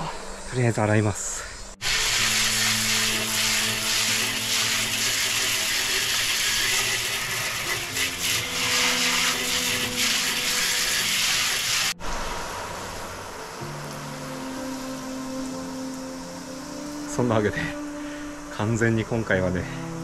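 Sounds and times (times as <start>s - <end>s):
water jet spraying: 1.8s - 13.5s.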